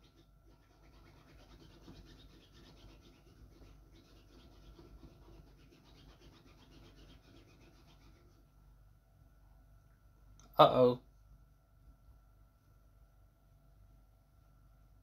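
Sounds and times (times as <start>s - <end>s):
faint fast scratchy rustle: 0.0s - 8.6s.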